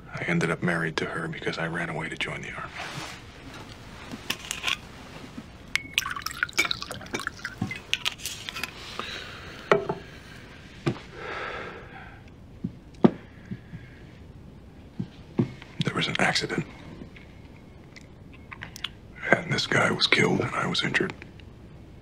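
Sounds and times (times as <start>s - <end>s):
liquid pouring into glass: 5.7s - 8.7s
glass clinking on table: 9.7s - 10.0s.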